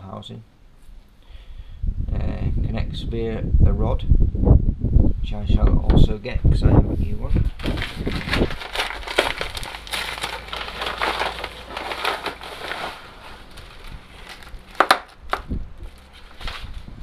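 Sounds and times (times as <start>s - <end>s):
paper envelope and plastic rustling: 7.3s - 17.0s.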